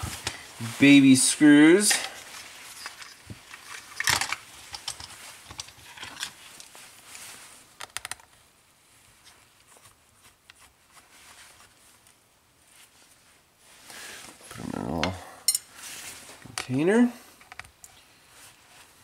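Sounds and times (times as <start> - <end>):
plastic clicks and rattles: 2.8 - 6.3, 7.8 - 8.4.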